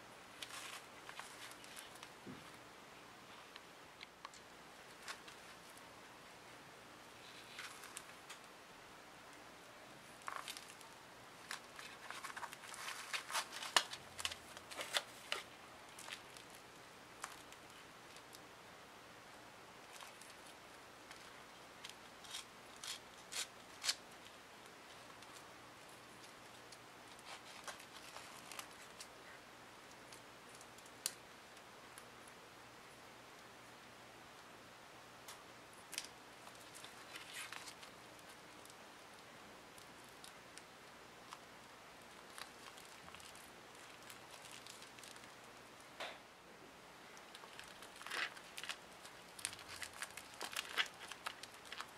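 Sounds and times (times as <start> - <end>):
plastic wrapping crinkling: 0.3 - 2.4, 7.2 - 8.5, 10.0 - 18.4, 19.8 - 29.1, 35.9 - 38.8, 42.0 - 45.5, 47.2 - 51.9
small clicks and rustles: 0.3 - 2.6, 3.4 - 5.8, 7.2 - 8.5, 10.1 - 18.5, 19.8 - 32.4, 35.2 - 45.6, 47.1 - 51.9.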